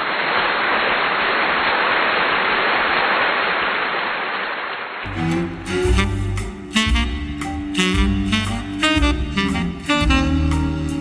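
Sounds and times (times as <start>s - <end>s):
loud static hiss: 0.0s - 7.6s
jazz ensemble with saxophone: 5.1s - 11.0s.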